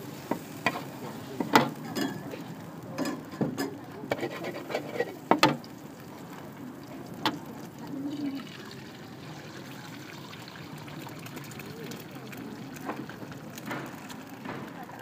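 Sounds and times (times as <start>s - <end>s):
frying oil sizzling: 0.0s - 15.0s
metal spatula scraping wok: 0.2s - 5.6s.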